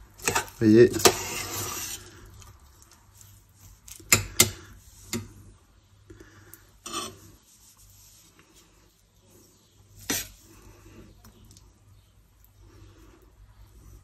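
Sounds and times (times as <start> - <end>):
spoon scraping pot: 0.0 - 2.6, 3.5 - 5.4, 6.8 - 8.1, 9.9 - 11.2.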